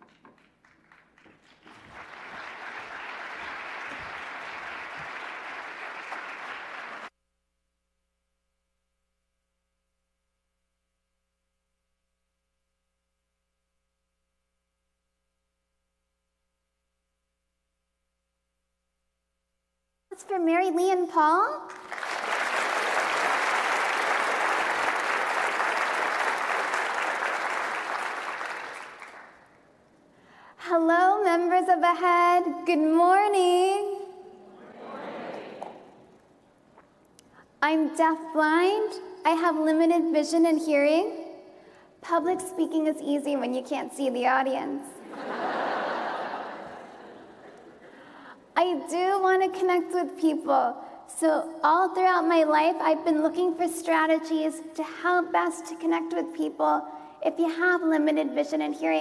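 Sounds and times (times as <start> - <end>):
large audience applauding: 0.0 - 7.1, 21.7 - 29.6, 34.8 - 36.0.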